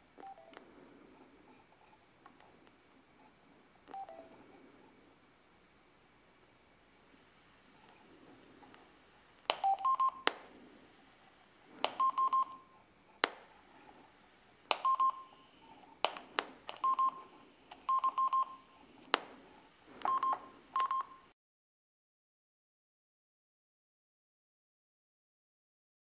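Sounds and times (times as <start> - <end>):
short electronic beeps: 12.0 - 12.8, 14.8 - 15.4.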